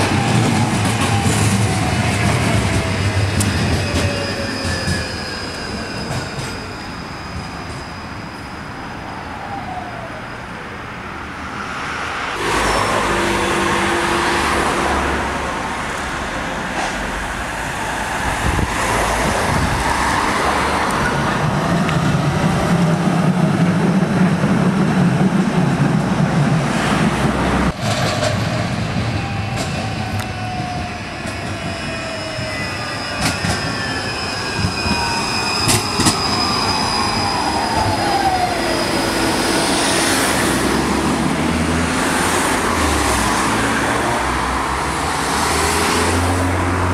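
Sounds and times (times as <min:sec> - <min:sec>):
tram wheels rumbling on rails: 0:00.0 - 0:08.6, 0:11.5 - 0:46.9
tram whine falling in pitch: 0:00.0 - 0:10.6, 0:26.8 - 0:41.4
wheel squeal: 0:00.2 - 0:09.2, 0:29.2 - 0:41.0.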